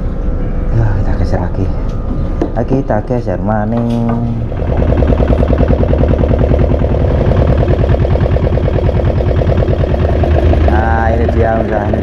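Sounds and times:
small boat engine running: 4.4 - 12.0.

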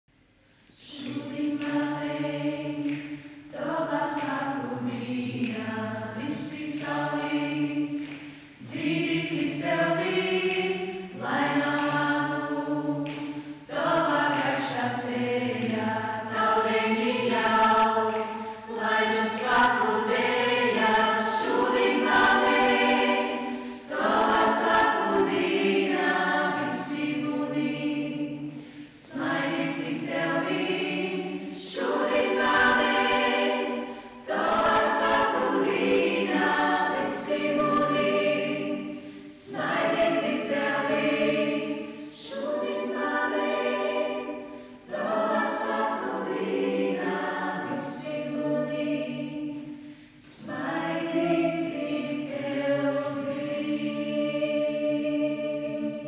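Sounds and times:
choir singing a cappella: 0.4 - 56.0.

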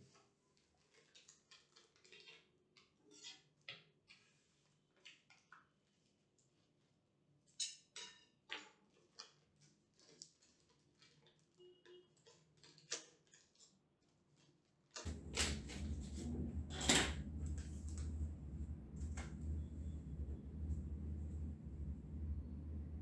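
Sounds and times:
steady low hum: 15.1 - 23.0.

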